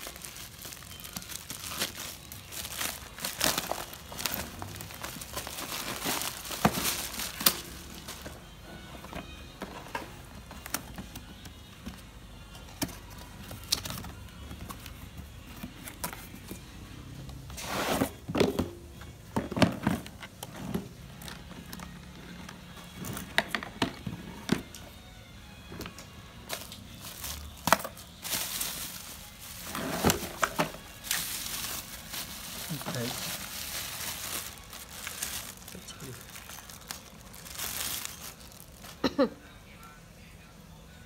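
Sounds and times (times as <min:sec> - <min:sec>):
bubble wrap crinkling: 0:00.0 - 0:08.4, 0:26.5 - 0:39.3.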